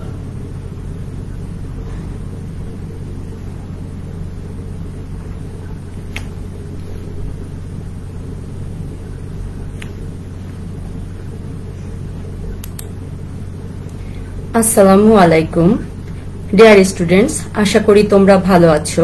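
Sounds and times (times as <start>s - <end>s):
low hum and rumble: 0.0s - 19.0s.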